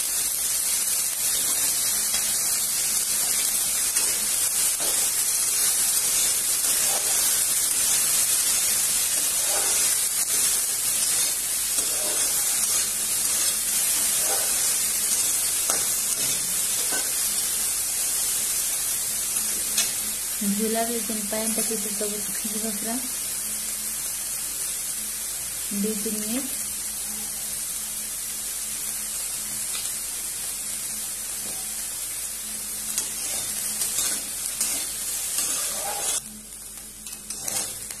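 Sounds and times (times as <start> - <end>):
fish sizzling in hot oil: 0.0 - 38.0
soft scrapes in a metal pan: 9.2 - 15.2, 33.0 - 36.2, 37.3 - 37.9.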